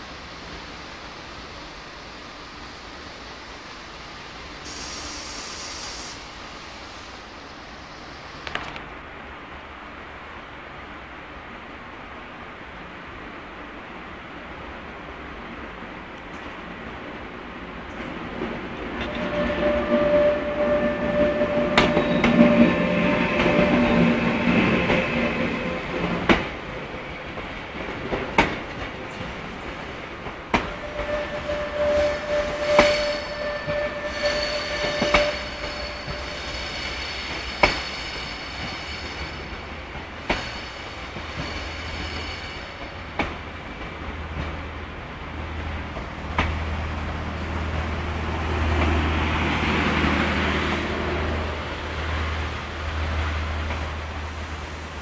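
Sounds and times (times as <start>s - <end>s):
train wheels clicking over rail joints: 17.9s - 50.7s
wheel squeal: 19.0s - 25.8s, 30.5s - 39.7s, 40.3s - 42.9s.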